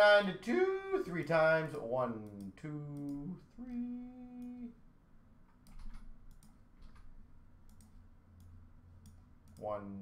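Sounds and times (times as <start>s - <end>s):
computer mouse clicks: 2.2s - 3.8s, 5.5s - 9.7s
keyboard keystrokes: 5.6s - 7.1s.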